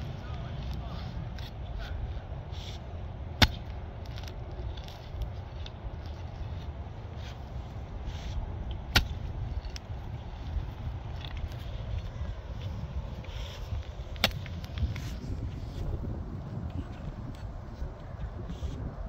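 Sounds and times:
steady low rumble: 0.0 - 19.0
pickaxe striking stump: 3.4 - 4.3, 8.8 - 9.8, 14.1 - 14.8.

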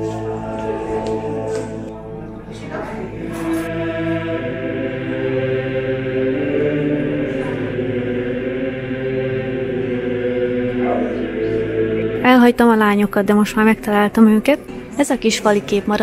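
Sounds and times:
choral music of held notes: 0.0 - 16.0.

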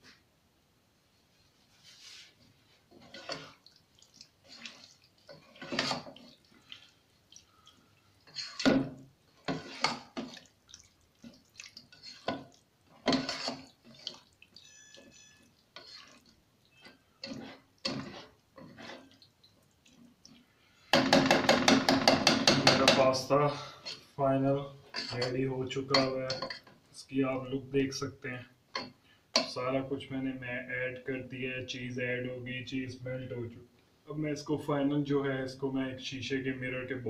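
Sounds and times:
spatula stirring thick sauce: 1.3 - 24.2, 24.8 - 26.8
spatula scraping pan: 1.6 - 3.7, 4.4 - 7.0, 8.2 - 10.5, 11.2 - 19.3, 20.9 - 24.2, 24.8 - 26.8.

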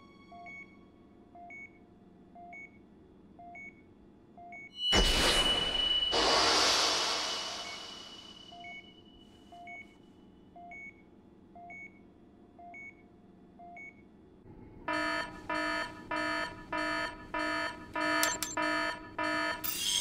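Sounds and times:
soft electronic monitor beep: 0.2 - 0.8, 1.4 - 1.8, 2.4 - 2.8, 3.4 - 5.0, 7.6 - 10.0, 10.6 - 12.0, 12.6 - 13.0, 13.6 - 14.0, 14.9 - 20.0
loud pulsing alarm: 4.9 - 8.8, 14.8 - 20.0.

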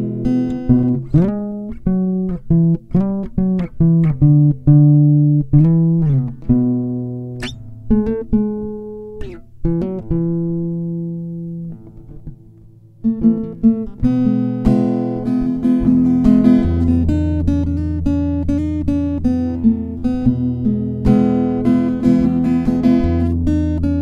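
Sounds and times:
fingerstyle acoustic guitar: 0.0 - 24.0.

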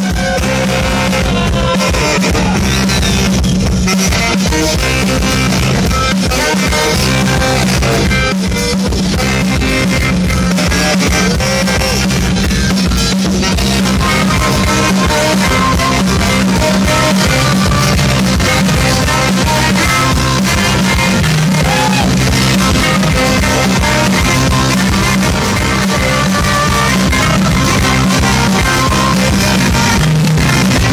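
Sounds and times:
live rock band playing: 0.0 - 30.9
tenor saxophone melody: 0.0 - 30.9.

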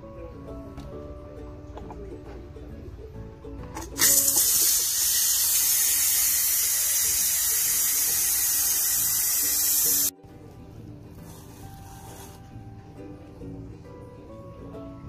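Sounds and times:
pressure cooker valve hissing steam: 4.0 - 10.1.

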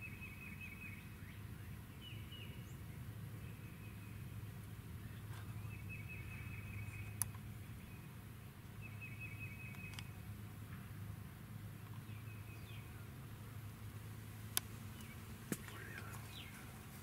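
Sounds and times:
steady low hum: 0.0 - 17.0.

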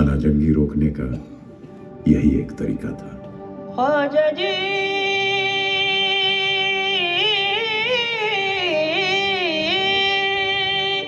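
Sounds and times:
person singing long high note: 3.8 - 11.0.

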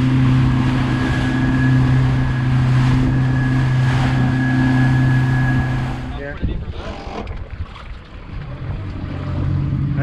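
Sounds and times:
high engine whine: 0.0 - 7.2
motorboat engine droning: 0.0 - 10.0
wind and water rushing: 0.0 - 10.0.

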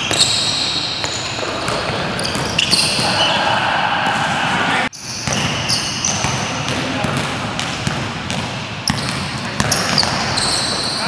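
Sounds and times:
shoes squeaking on court: 0.0 - 3.4, 5.0 - 6.6, 8.8 - 11.0
indoor hall noise: 0.0 - 11.0
basketball bouncing on floor: 5.2 - 10.3.

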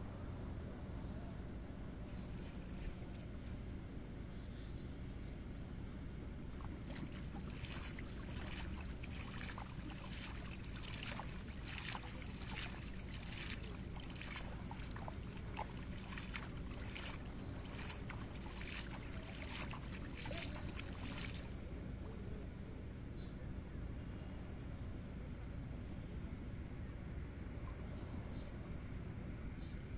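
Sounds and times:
steady low rumble: 0.0 - 29.9
water splashing and sloshing: 6.5 - 21.7.

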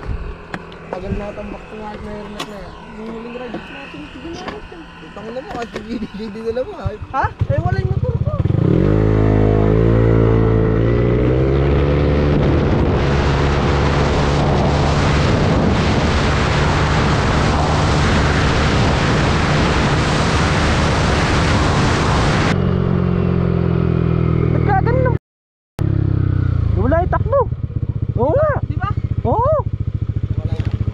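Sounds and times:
scooter engine: 0.0 - 19.7, 25.8 - 30.9
wind rush: 0.0 - 23.3.

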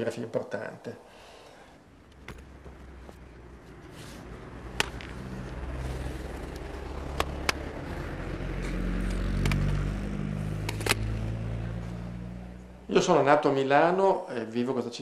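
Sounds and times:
vehicle engine rumble: 1.7 - 13.0
sharp clicks: 10.6 - 11.1.

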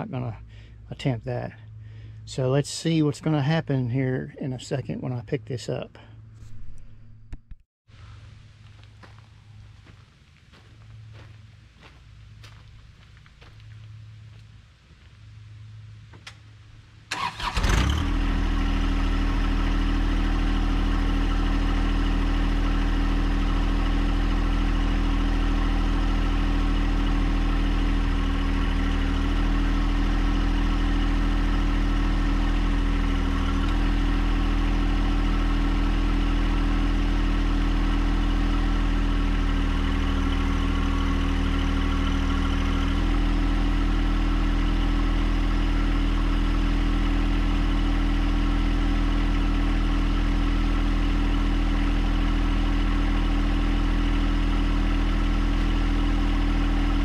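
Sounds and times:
diesel tractor engine running: 0.0 - 57.0.

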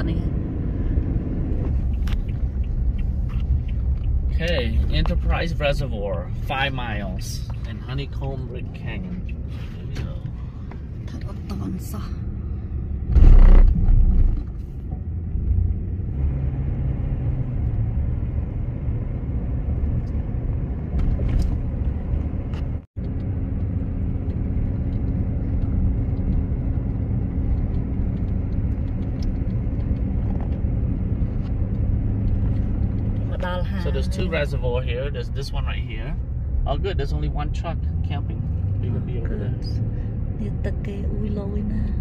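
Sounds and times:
road and engine rumble: 0.0 - 42.0
loud low thud: 13.0 - 14.6.

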